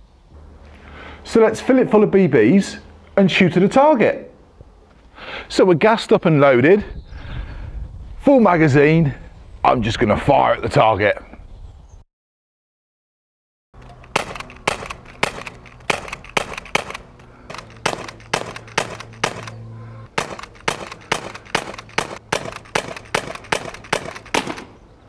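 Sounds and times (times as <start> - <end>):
bb pistol shots: 13.9 - 24.8.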